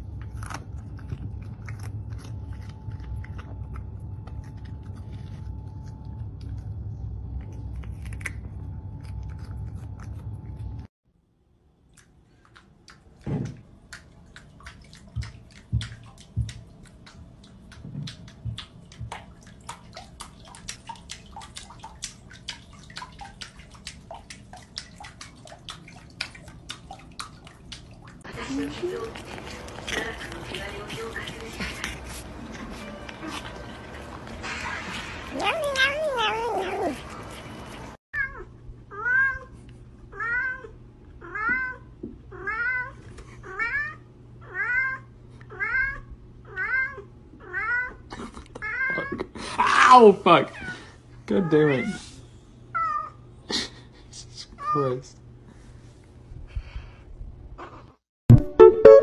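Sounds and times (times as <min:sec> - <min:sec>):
small water splashes: 0:12.4 - 0:30.2
plinking water drips: 0:13.8 - 0:28.2
cat meowing: 0:35.3 - 0:37.0.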